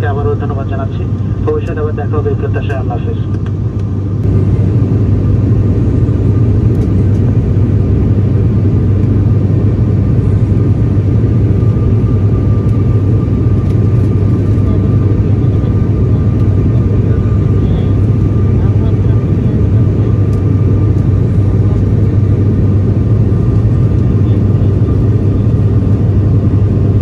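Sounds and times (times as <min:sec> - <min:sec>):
turboprop engines droning: 0:00.0 - 0:27.0.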